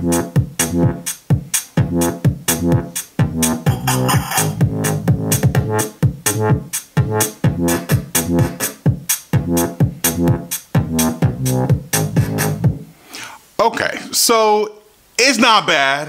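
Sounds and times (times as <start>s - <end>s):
electronic hip-hop beat: 0.0s - 12.8s.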